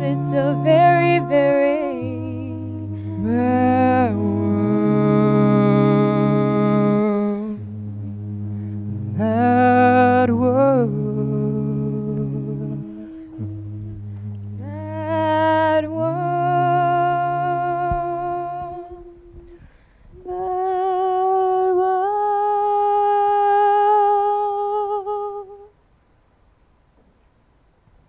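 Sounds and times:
choir humming: 0.0s - 19.5s.

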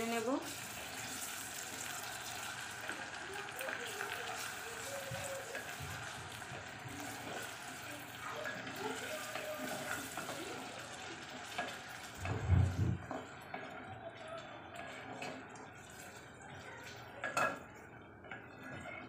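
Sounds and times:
vegetables frying in oil: 0.0s - 18.7s.

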